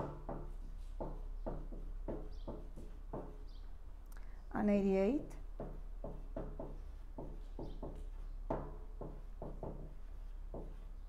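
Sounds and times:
marker pen writing on board: 0:05.6 - 0:11.0.

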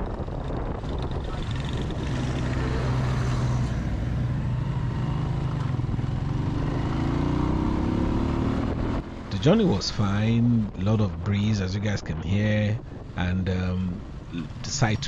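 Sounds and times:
motorcycle engine running: 0:00.0 - 0:09.3
wind buffeting microphone: 0:00.0 - 0:15.0.

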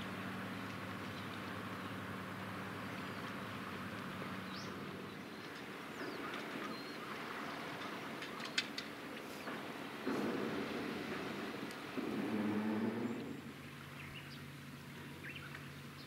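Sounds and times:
low engine hum: 0:00.0 - 0:16.0
low rumble: 0:10.1 - 0:14.1.

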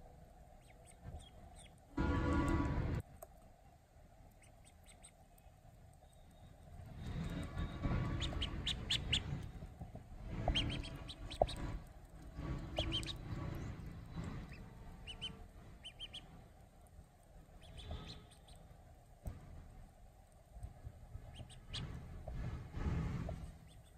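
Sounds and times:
low rumbling noise: 0:00.0 - 0:04.4, 0:05.2 - 0:23.9
duckling peeping: 0:00.6 - 0:01.8, 0:04.3 - 0:05.5, 0:07.0 - 0:16.4, 0:17.5 - 0:18.7, 0:21.2 - 0:22.3, 0:23.6 - 0:23.9.

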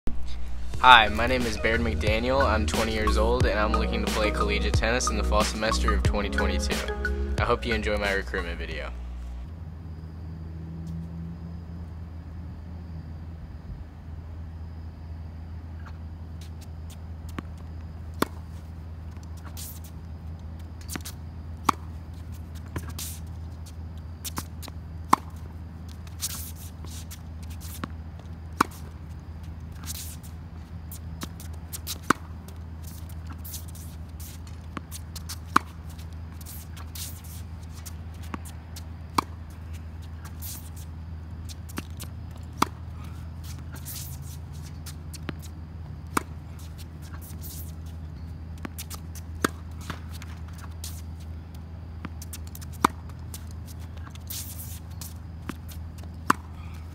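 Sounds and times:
steady low hum: 0:00.1 - 0:56.9
tennis racket hitting ball: 0:20.8 - 0:22.0, 0:24.3 - 0:25.4, 0:31.2 - 0:40.9, 0:41.5 - 0:48.0, 0:48.6 - 0:51.1, 0:52.1 - 0:56.7.

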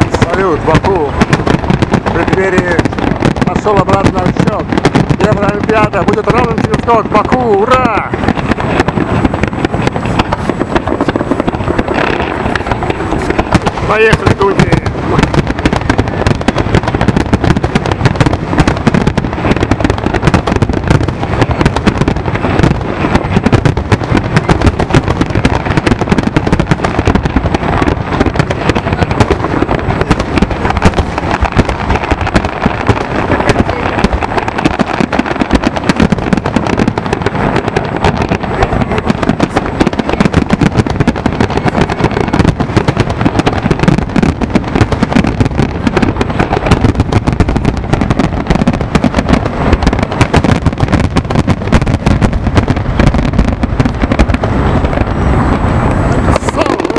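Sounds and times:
fireworks bursting and crackling: 0:00.0 - 0:56.9.

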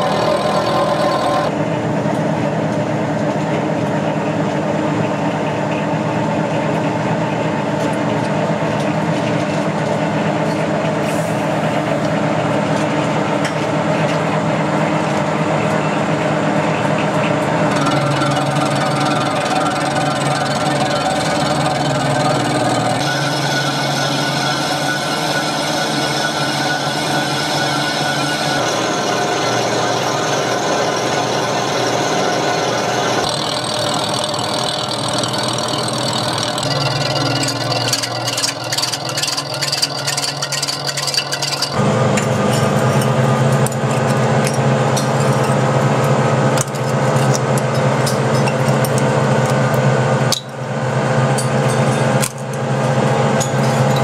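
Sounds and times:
metal lathe humming: 0:00.0 - 0:01.6, 0:10.0 - 0:54.0
cutting tool clatter: 0:33.2 - 0:49.6.

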